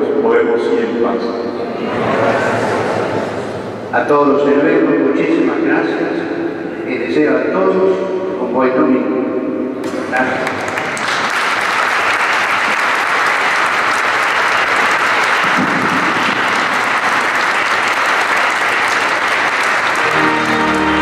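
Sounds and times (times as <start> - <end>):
congregation applauding: 9.8 - 21.0
music: 20.0 - 21.0.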